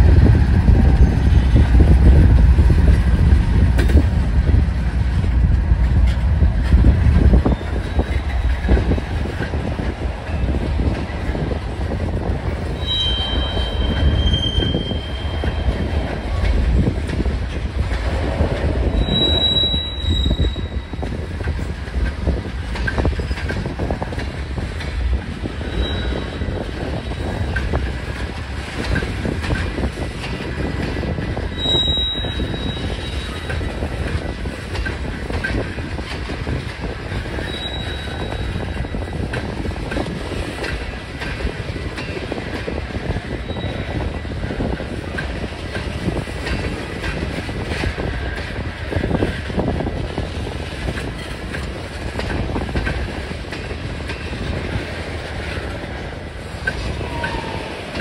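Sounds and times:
train wheels rumbling on rail: 0.0 - 58.0
high-pitched wheel squeals: 12.8 - 15.9, 19.0 - 21.0, 25.6 - 26.6, 31.5 - 33.5, 37.4 - 38.7.

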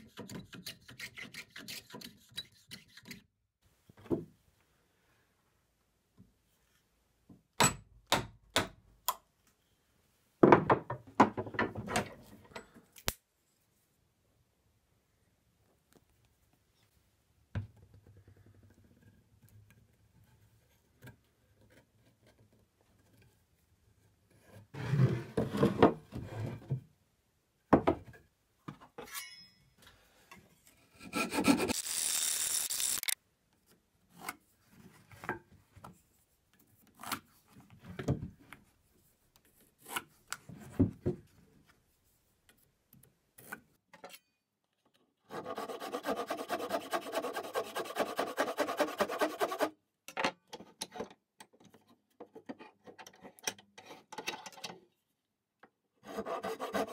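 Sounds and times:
backsaw cutting wood: 31.0 - 33.2, 45.3 - 49.7
handsaw cutting wood: 31.0 - 33.2, 45.3 - 49.7, 56.0 - 56.9.

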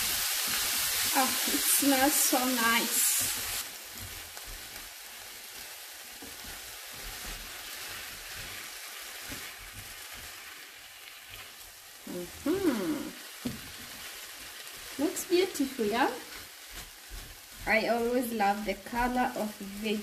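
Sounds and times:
vegetables sizzling in oil: 0.0 - 20.0
person's voice: 12.1 - 13.2, 15.0 - 16.2, 17.6 - 20.0.

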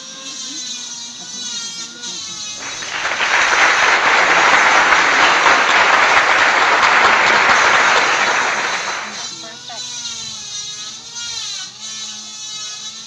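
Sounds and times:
crowd applause: 2.6 - 9.3.

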